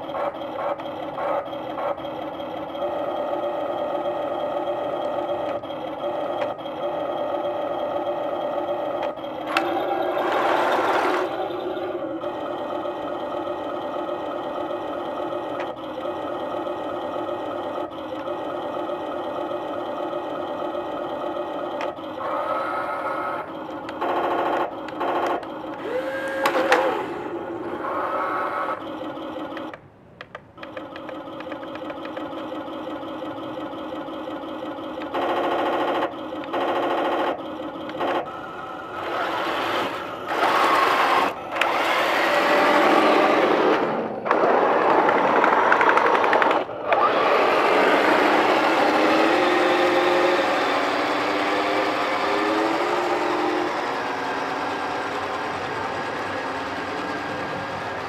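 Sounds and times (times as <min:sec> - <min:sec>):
toy diesel engine idle sound: 0:00.0 - 0:29.8, 0:30.6 - 0:58.0
toy tank tracks grinding on concrete: 0:00.1 - 0:58.0
small electric motors whirring: 0:25.3 - 0:28.8, 0:38.8 - 0:43.9.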